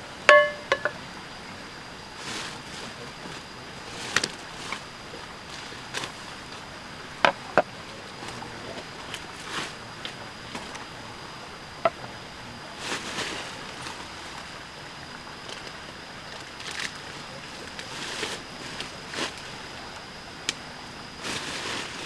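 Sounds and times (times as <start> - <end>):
steady hiss: 0.0 - 22.0
faint high tone: 0.3 - 1.0.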